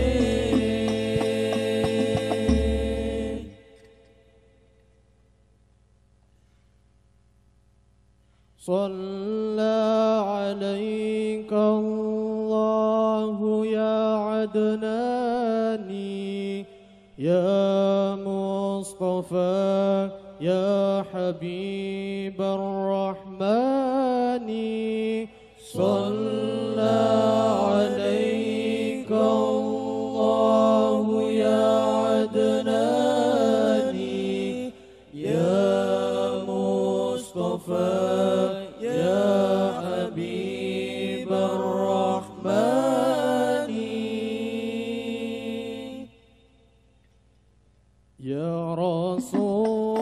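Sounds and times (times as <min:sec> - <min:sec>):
men singing together: 0:00.0 - 0:03.9, 0:23.5 - 0:46.1, 0:49.1 - 0:50.0.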